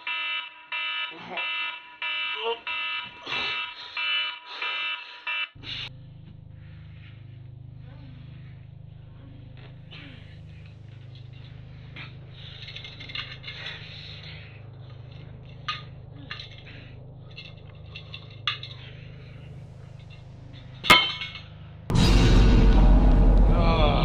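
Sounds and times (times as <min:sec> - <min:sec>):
steady low hum: 0:05.6 - 0:24.0
glass ringing clink: 0:20.8 - 0:21.5.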